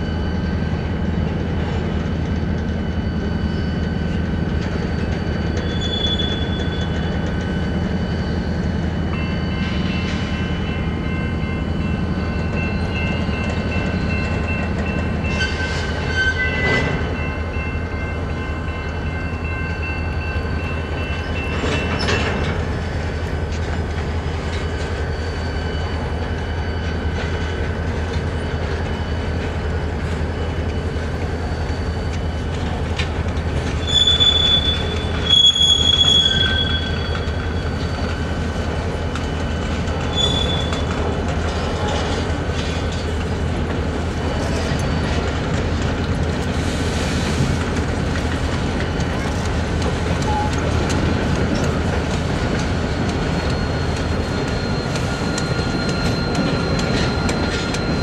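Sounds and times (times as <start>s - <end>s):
train cars rumbling past: 0.0s - 58.0s
wheels squealing: 3.0s - 10.6s, 20.4s - 58.0s.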